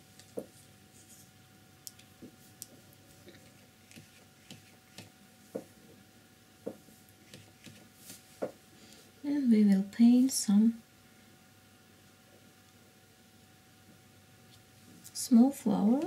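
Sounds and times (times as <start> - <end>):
brush tapping and clicking on palette: 3.8 - 5.7, 6.6 - 7.8.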